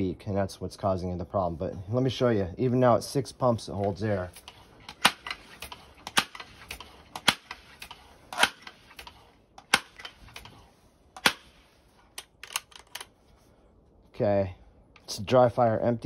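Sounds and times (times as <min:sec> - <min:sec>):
air rifle dry-firing clicks: 0:04.3 - 0:13.2
rifle bolt clicks: 0:12.1 - 0:13.2.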